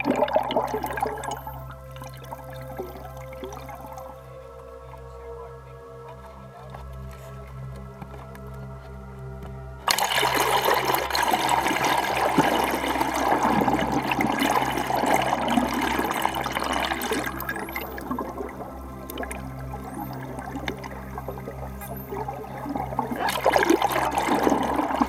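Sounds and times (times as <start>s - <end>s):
water rushing and bubbling: 0.0s - 4.2s, 9.8s - 25.0s
background music: 0.0s - 25.0s.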